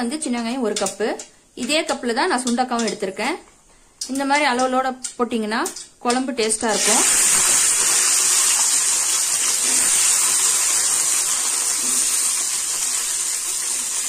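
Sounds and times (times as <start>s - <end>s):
garlic sizzling in hot oil: 5.7s - 14.0s.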